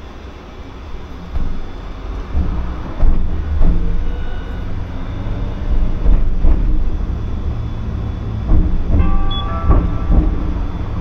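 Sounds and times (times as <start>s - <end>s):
streetcar rumbling on track: 0.0s - 11.0s
short knocks: 8.4s - 11.0s.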